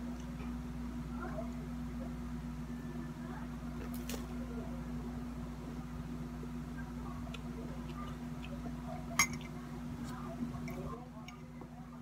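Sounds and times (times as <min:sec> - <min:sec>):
low steady hum: 0:00.0 - 0:12.0
metal spoon clinking on mug: 0:09.2 - 0:09.5.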